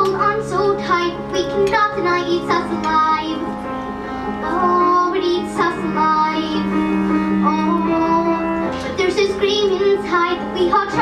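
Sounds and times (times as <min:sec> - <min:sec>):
instrumental accompaniment: 0:00.0 - 0:11.0
girl singing long notes: 0:04.3 - 0:11.0.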